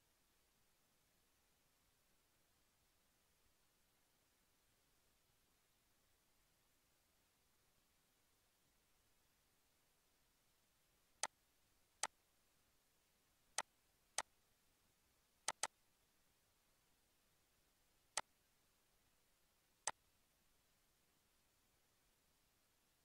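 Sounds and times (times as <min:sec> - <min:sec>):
computer mouse button clicking: 0:15.5 - 0:15.7.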